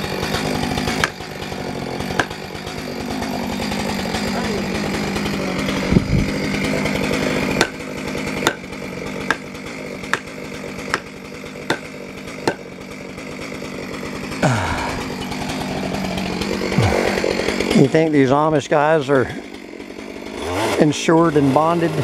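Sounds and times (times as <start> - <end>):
chainsaw running and idling: 0.0 - 22.0
hammer knocking wedges: 0.2 - 1.3, 2.0 - 7.8, 8.4 - 8.7, 9.3 - 12.7.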